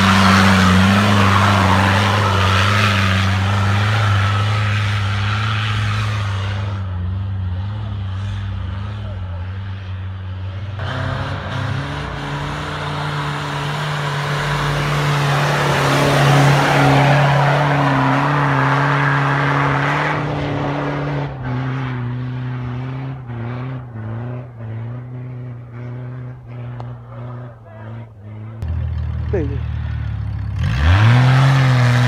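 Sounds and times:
spinning tyres flinging snow and mud: 0.0 - 6.8
diesel engine revving: 0.0 - 32.0.

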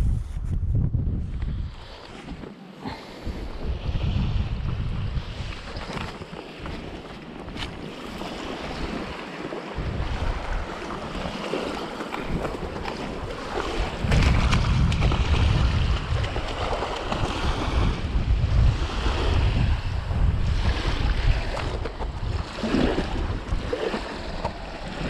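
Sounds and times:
wind buffeting microphone: 0.0 - 25.0
waves washing on shore: 1.7 - 25.0.

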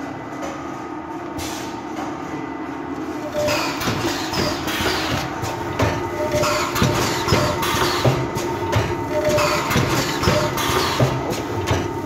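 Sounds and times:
steady machine hum: 0.0 - 12.0
short machine tone: 3.2 - 3.8
machine clacks and knocks: 3.3 - 12.0.

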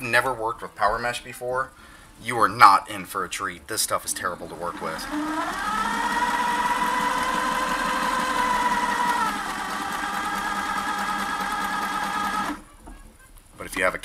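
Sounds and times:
sewing machine motor whining: 3.9 - 12.7.

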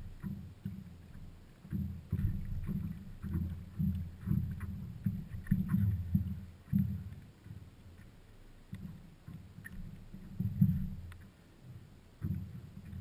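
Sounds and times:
hollow thuds on paddleboard: 0.0 - 7.2, 12.2 - 13.0
faint high clicks: 0.0 - 13.0
water lapping against board: 0.0 - 13.0.

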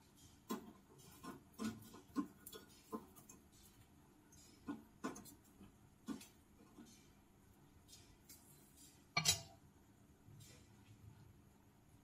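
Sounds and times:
metal tongs clicking on pan: 9.2 - 9.6.

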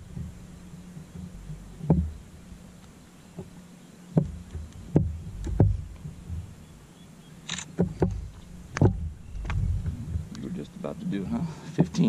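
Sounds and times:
knocks and thumps on kayak: 0.0 - 2.3, 3.3 - 6.6, 7.7 - 10.3, 11.7 - 12.0.

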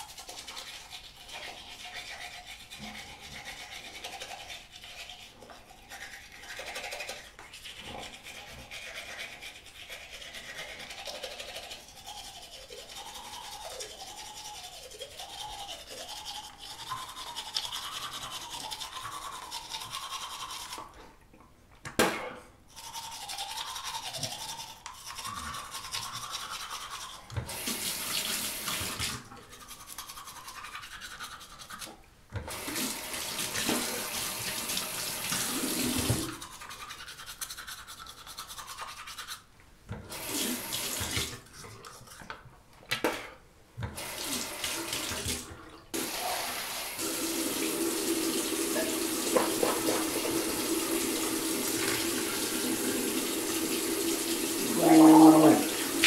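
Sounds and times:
toothbrush scrubbing teeth: 0.0 - 21.1, 22.7 - 42.4, 44.0 - 56.0.

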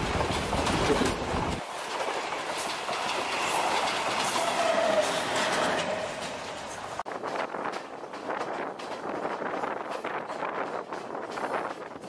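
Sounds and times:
train wheels clattering over rails: 0.0 - 12.0.

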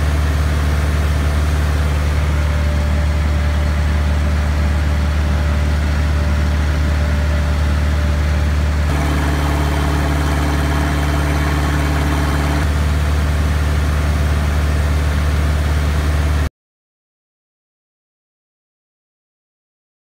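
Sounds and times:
engine idling through muffler: 0.0 - 16.0
engine idling through straight pipe: 0.0 - 16.5.

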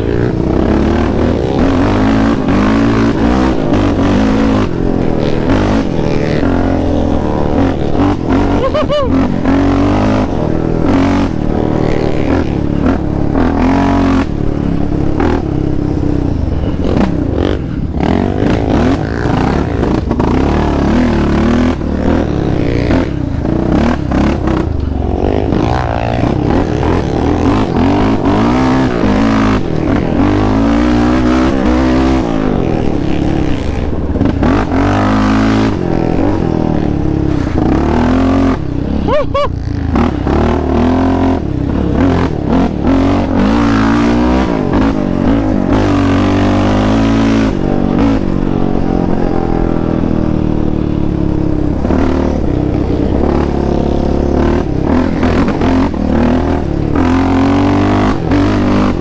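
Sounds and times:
atv engine revving: 0.0 - 59.0
clatter and scraping over rough trail: 0.0 - 59.0.

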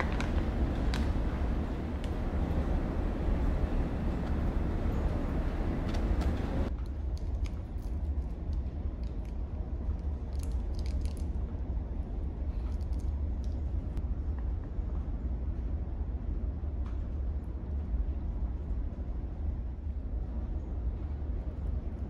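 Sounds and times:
ferry engines droning: 0.0 - 6.7.

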